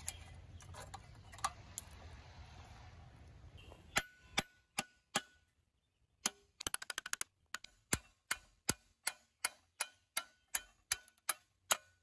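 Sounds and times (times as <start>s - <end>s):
hammer striking metal rod: 3.9s - 5.4s, 7.9s - 12.0s.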